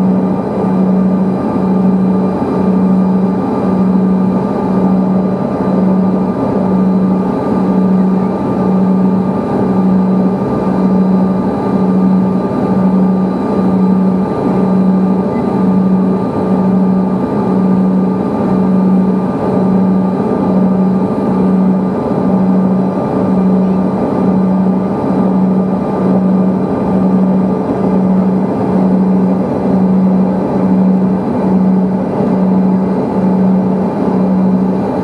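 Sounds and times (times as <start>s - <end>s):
aircraft cabin noise: 0.0s - 35.0s
pulsing low hum: 0.0s - 35.0s.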